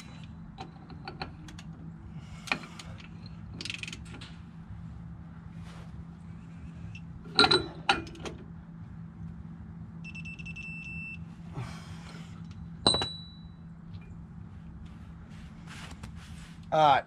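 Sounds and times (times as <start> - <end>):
electronic torque wrench beeping: 10.0 - 11.3.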